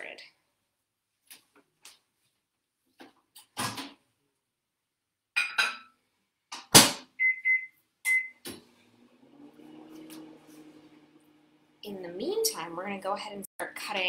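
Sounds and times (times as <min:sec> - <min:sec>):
short keypad beeps: 0:07.2 - 0:08.4
microwave oven humming: 0:08.1 - 0:11.9.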